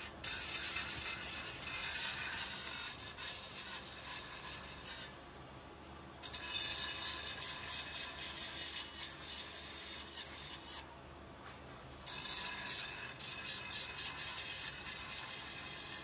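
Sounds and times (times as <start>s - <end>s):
metal grinding on abrasive wheel: 0.0s - 5.2s, 6.2s - 10.9s, 12.0s - 16.0s.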